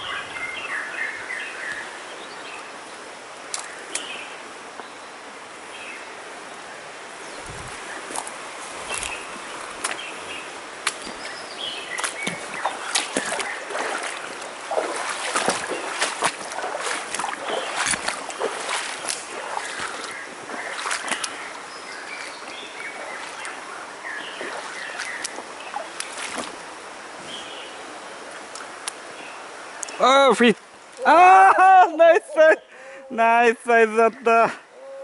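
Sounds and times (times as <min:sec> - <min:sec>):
stream flowing: 0:00.0 - 0:34.8
wading splashes in water: 0:07.3 - 0:32.6
twigs and leaves brushing: 0:07.4 - 0:26.7.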